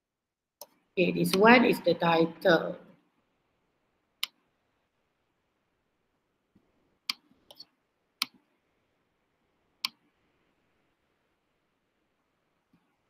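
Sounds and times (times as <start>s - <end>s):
computer mouse clicks: 4.2s - 4.4s, 7.0s - 8.5s, 9.8s - 10.0s.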